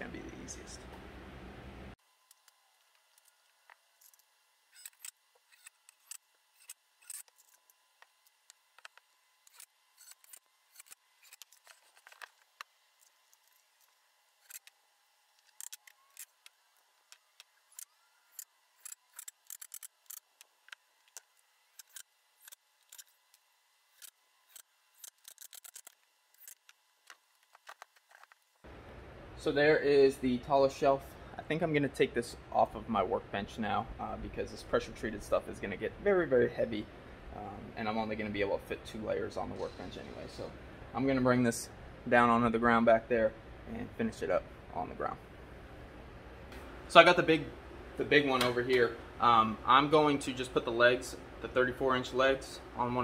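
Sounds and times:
low hiss: 28.5 - 53.0.

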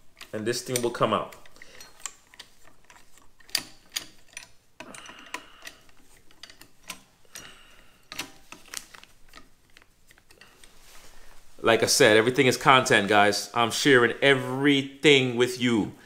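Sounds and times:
screwdriver clicking on screws: 0.0 - 10.6.

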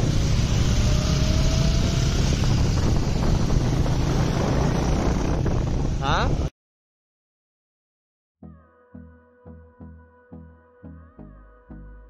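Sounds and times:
vehicle running noise: 0.0 - 6.5
wind buffeting microphone: 0.0 - 6.5.

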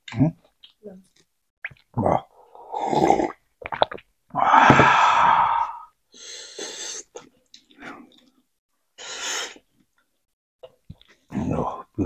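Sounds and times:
person exhaling breathily: 4.4 - 7.0.

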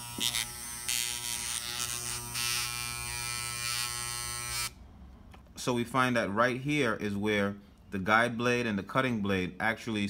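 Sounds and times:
hair clipper motor buzzing: 0.0 - 4.8.

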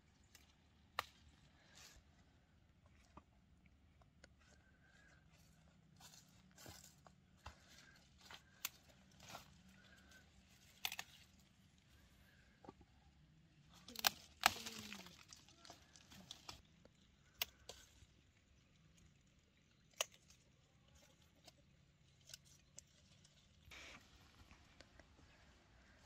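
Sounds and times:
pepper stems snapping: 10.7 - 11.3, 13.8 - 16.6
leaves rustling: 13.7 - 16.6.

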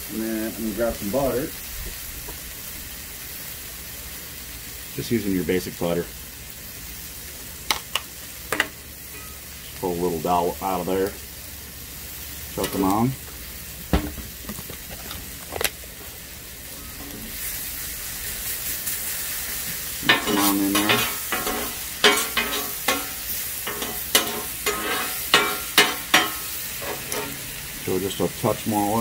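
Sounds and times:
vegetables sizzling on a griddle: 0.0 - 29.0
metal spatulas scraping griddle: 20.0 - 27.5.

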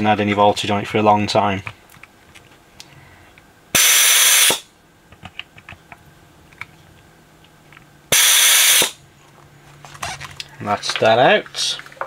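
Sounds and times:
desoldering pump hissing: 3.8 - 4.6, 8.1 - 9.0.

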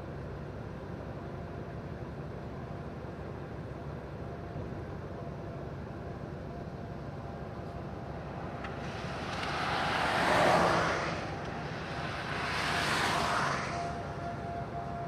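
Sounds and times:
background rumble: 6.0 - 15.0
car passing by: 7.6 - 15.0.

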